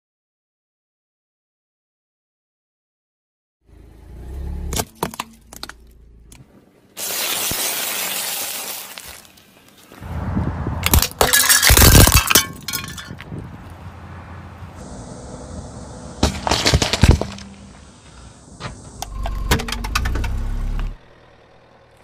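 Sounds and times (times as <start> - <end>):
plastic scoops shattering: 7.0 - 9.4, 10.9 - 13.2, 16.2 - 17.5
tyre crushing objects cracking: 10.8 - 13.2, 16.2 - 17.6.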